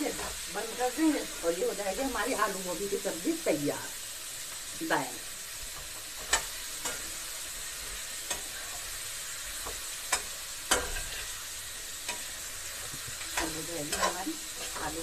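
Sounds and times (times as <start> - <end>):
vegetables sizzling in a pan: 0.0 - 15.0
spatula scraping a pan: 5.6 - 15.0.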